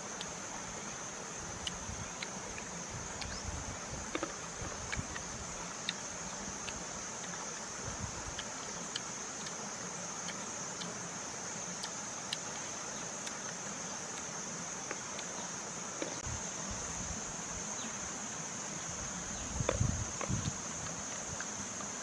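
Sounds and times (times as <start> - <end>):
leaves and berries ticking: 0.0 - 0.8, 1.4 - 11.0, 11.6 - 16.3
insect chorus: 0.0 - 22.0.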